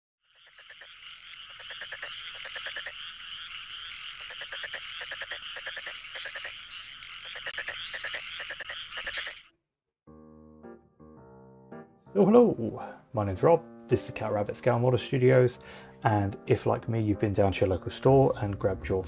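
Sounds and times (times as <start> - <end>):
frog chorus croaking and trilling: 0.2 - 9.6
short rising frog calls: 0.2 - 9.6.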